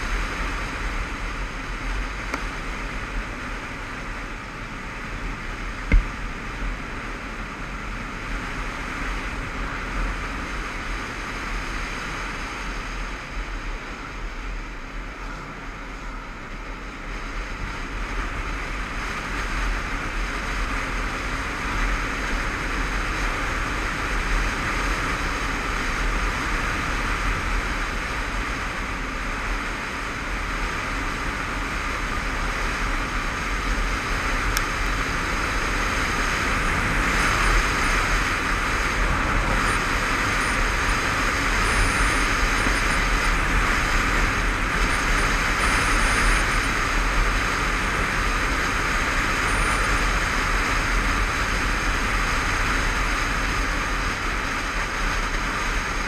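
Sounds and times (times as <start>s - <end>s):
motorcycle engine running: 0.0s - 56.0s
wind rushing over microphone: 0.0s - 56.0s
sharp knock: 5.9s - 6.2s.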